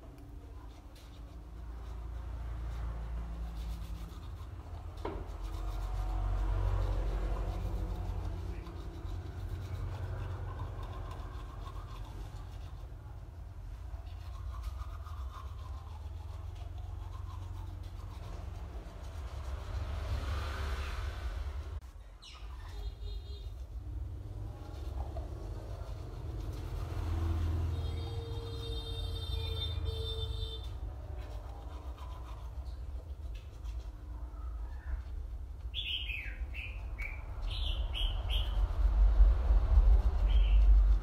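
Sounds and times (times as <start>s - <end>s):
toothbrush scrubbing teeth: 0.1s - 20.3s, 22.9s - 28.4s, 30.7s - 34.1s
steady low rumble: 36.3s - 41.0s.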